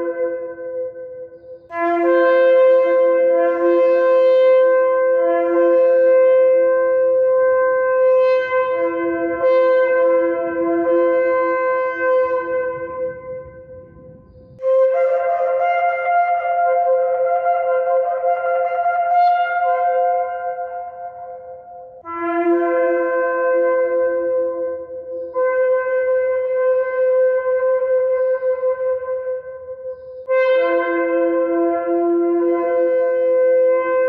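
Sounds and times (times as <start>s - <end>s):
shofar blast: 1.7s - 17.2s, 30.3s - 34.0s.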